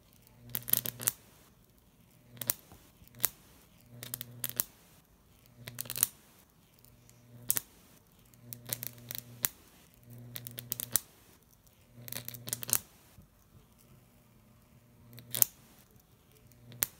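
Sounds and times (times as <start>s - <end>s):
electric arc buzzing and crackling: 0.0s - 13.2s, 14.8s - 16.9s
sharp electric snap: 0.4s - 1.5s, 2.3s - 4.8s, 5.6s - 6.5s, 7.3s - 11.2s, 12.0s - 13.1s, 15.1s - 15.9s, 16.6s - 16.9s.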